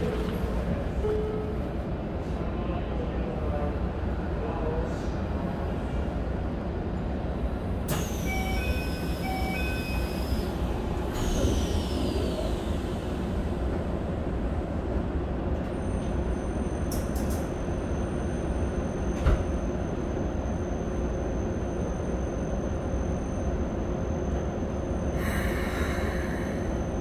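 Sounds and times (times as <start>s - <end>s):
train low rumble: 0.0s - 27.0s
train door chime: 7.9s - 10.4s.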